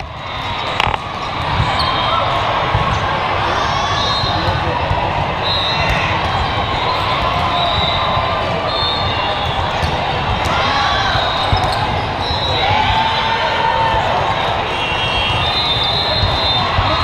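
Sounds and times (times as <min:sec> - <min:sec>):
volleyballs struck and bouncing: 0:00.0 - 0:03.5, 0:04.4 - 0:12.2
murmur of voices: 0:00.0 - 0:17.0.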